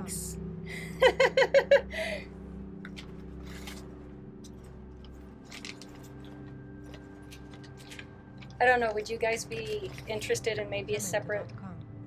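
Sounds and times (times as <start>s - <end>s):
person laughing: 0.7s - 2.2s
paper rustling and crinkling: 2.9s - 3.9s, 4.5s - 10.4s.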